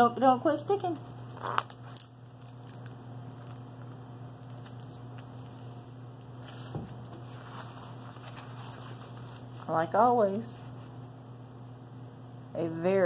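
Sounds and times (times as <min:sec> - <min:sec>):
low electrical hum: 0:00.0 - 0:13.0
hands rustling plastic sheet: 0:06.3 - 0:09.8.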